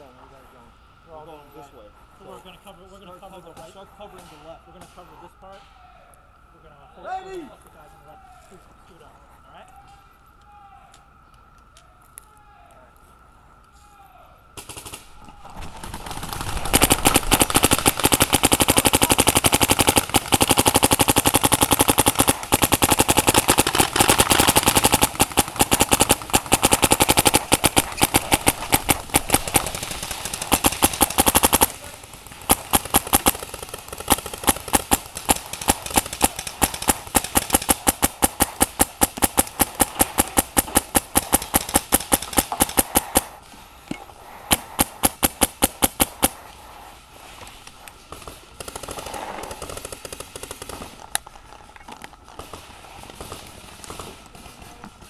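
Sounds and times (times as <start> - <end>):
paintball markers firing: 14.6 - 46.9, 48.1 - 51.4.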